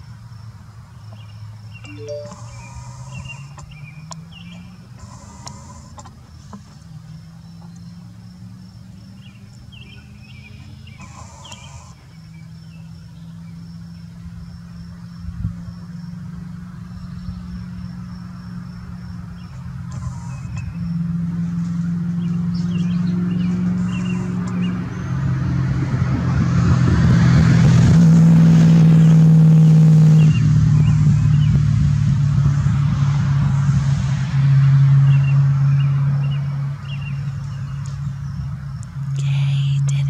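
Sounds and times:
vehicle engine running: 0:00.0 - 0:40.0
birds chirping: 0:01.0 - 0:05.8, 0:09.1 - 0:14.1, 0:19.3 - 0:21.0, 0:22.1 - 0:25.2, 0:35.1 - 0:40.0.

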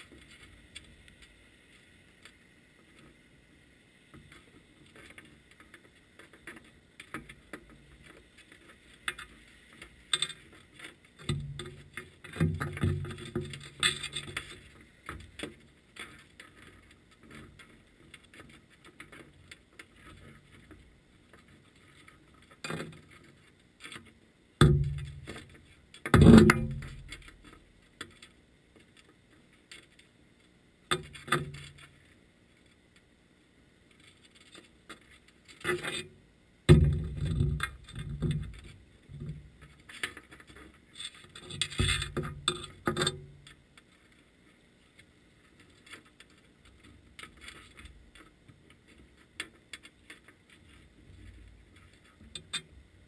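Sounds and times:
underwater knocks and scrapes: 0:36.7 - 0:44.1.

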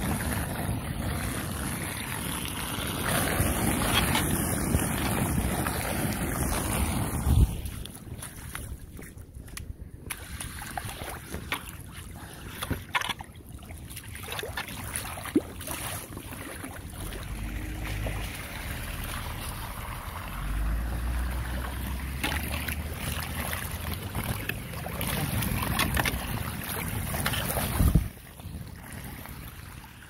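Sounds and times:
water rushing into drain: 0:00.0 - 0:08.6, 0:14.2 - 0:28.2
wind buffeting microphone: 0:00.0 - 0:13.3, 0:22.8 - 0:30.0.

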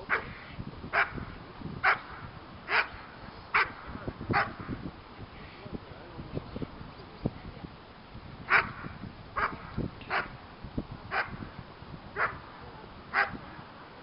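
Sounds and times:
dog barking: 0:04.4 - 0:04.6, 0:12.2 - 0:12.4.

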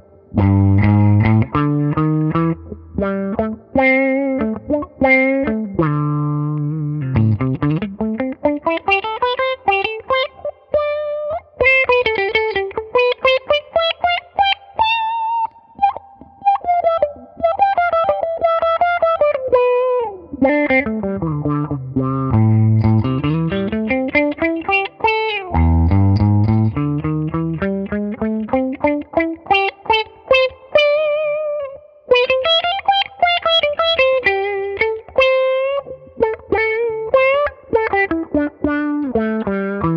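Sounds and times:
electric guitar with envelope filter: 0:00.0 - 0:39.9.

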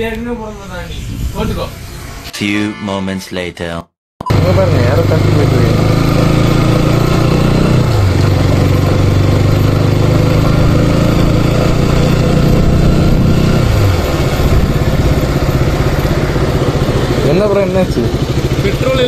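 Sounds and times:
motorcycle engine running: 0:04.3 - 0:19.0.

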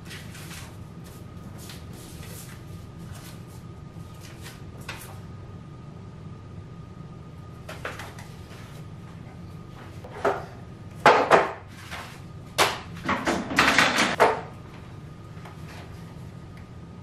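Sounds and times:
low room hum: 0:00.0 - 0:17.0
household items knocking and clattering: 0:12.6 - 0:14.4.

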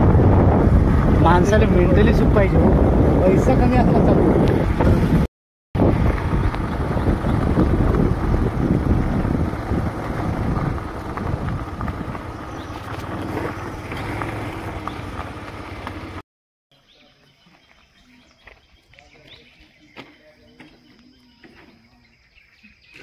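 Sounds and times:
wind buffeting microphone: 0:00.0 - 0:16.2
motorcycle engine running: 0:05.8 - 0:16.2.

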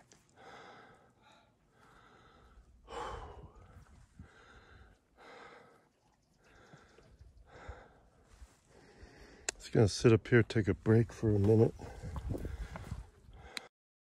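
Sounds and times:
person breathing hard: 0:00.3 - 0:05.9, 0:06.5 - 0:09.5, 0:11.8 - 0:13.7.

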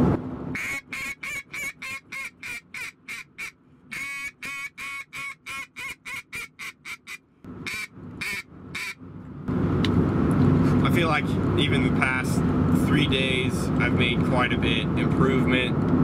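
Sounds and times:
duck call quacks: 0:00.6 - 0:09.0.

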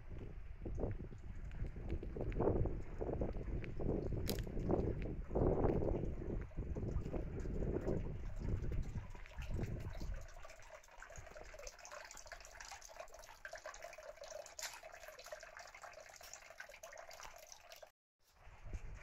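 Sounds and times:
water trickling and dripping: 0:00.1 - 0:19.0.

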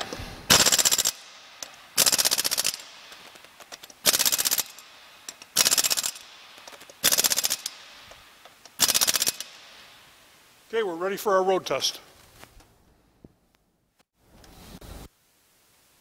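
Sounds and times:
pneumatic impact wrench hammering: 0:00.0 - 0:09.6.

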